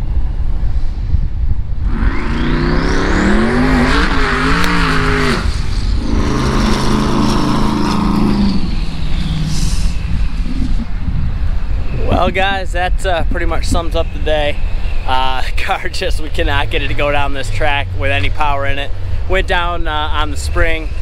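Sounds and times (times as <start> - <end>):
car engine revving hard: 1.8 - 10.6
turbo whistle: 1.9 - 10.9.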